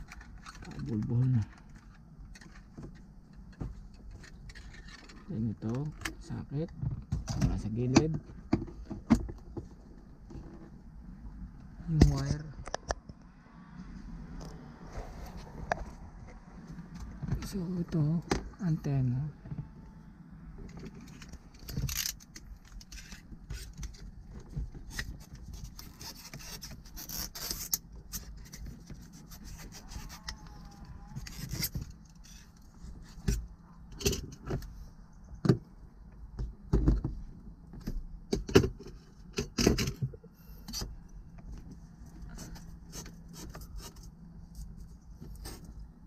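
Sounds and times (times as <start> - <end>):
tools scraping plastic and glass: 24.8 - 30.4, 31.2 - 33.4.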